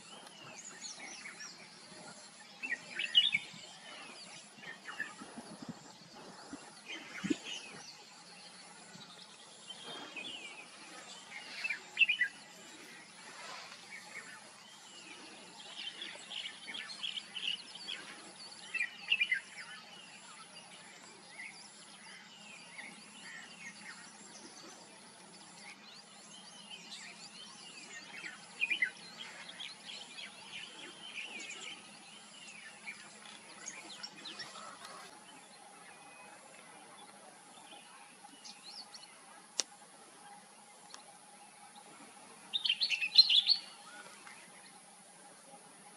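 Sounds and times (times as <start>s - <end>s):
steady background hiss: 0.0s - 45.9s.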